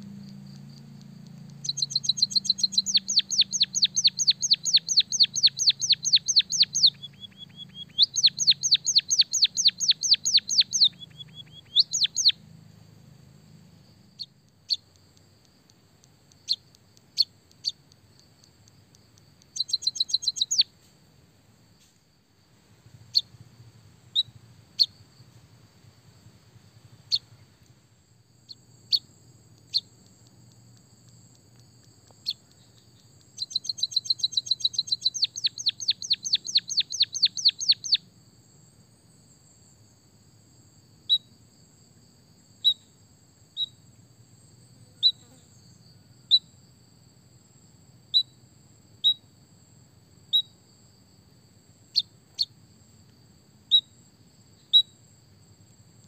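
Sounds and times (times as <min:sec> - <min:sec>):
bird chirping rapidly: 0:01.5 - 0:12.4, 0:14.2 - 0:15.1, 0:16.3 - 0:17.8, 0:19.4 - 0:20.7, 0:23.1 - 0:23.4, 0:24.1 - 0:25.0, 0:27.0 - 0:27.4, 0:28.5 - 0:31.2, 0:32.2 - 0:38.0.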